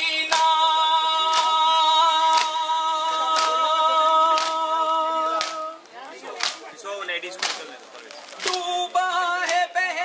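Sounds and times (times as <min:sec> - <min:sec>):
chest beating slaps: 0:07.4 - 0:08.6.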